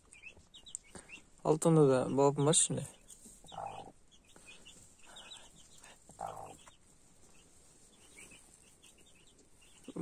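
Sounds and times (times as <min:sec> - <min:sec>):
hen clucking: 0:02.2 - 0:10.0.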